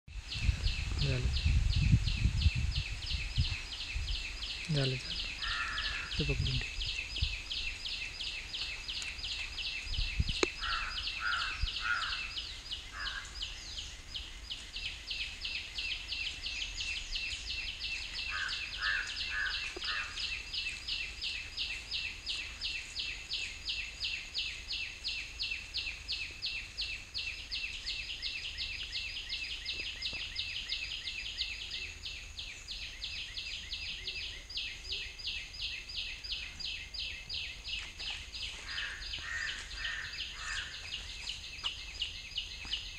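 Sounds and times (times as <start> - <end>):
insects chirping: 0.1 - 42.9.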